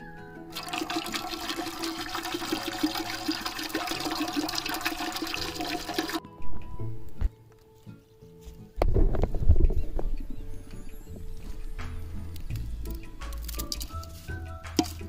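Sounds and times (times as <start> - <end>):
water pouring into metal pot: 0.5 - 6.2, 14.8 - 15.0.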